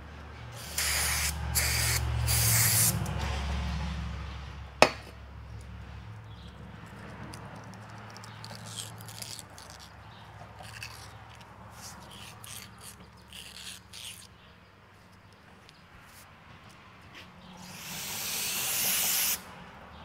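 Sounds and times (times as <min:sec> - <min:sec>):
hands scraping and clicking metal part: 0:06.4 - 0:14.4.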